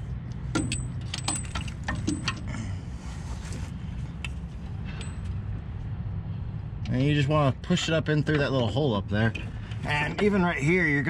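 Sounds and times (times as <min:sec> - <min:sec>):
metallic clinks and rattles: 0:00.5 - 0:02.6, 0:04.9 - 0:05.5.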